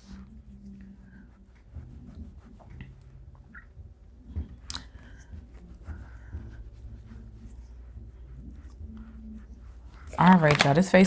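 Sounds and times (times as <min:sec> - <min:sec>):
makeup brush strokes: 0:00.0 - 0:11.0.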